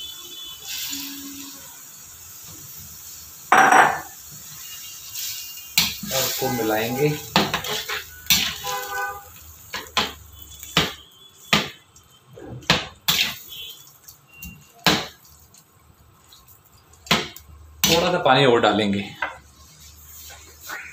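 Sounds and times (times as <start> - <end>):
metal spatula clanking in pan: 7.3 - 8.7.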